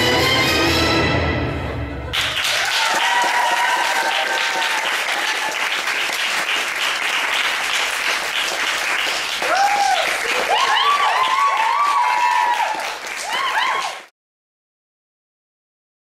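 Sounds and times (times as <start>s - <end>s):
audience applauding: 2.1s - 14.1s
voices whooping and cheering: 2.4s - 5.6s, 9.4s - 14.1s.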